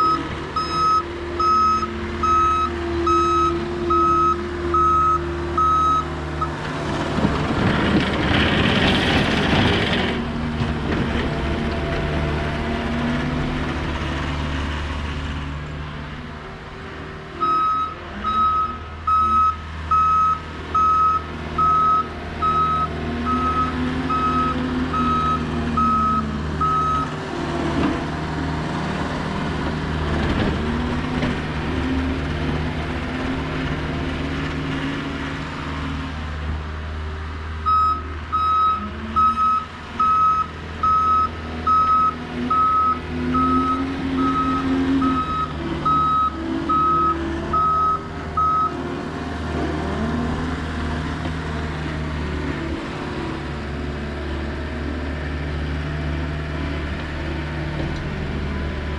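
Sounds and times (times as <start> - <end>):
reversing alarm beeping: 0.0 - 6.5, 17.4 - 27.1, 37.7 - 48.8
diesel engine running: 0.0 - 58.9.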